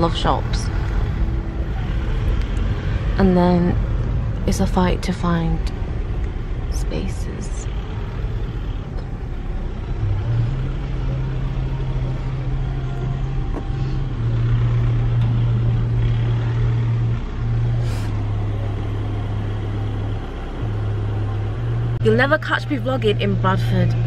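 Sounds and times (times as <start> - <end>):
car engine hum: 0.0 - 24.0.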